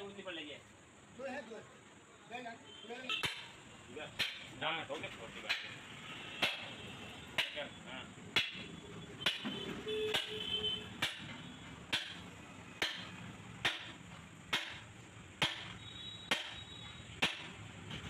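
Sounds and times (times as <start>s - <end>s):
hammer blows on metal: 8.4s - 12.2s, 15.4s - 17.5s.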